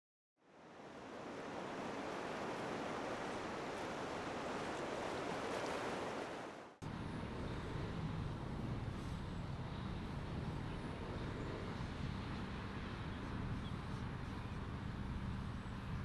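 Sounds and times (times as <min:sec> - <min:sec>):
surf rushing: 0:00.5 - 0:06.8
low outdoor rumble: 0:06.8 - 0:16.0.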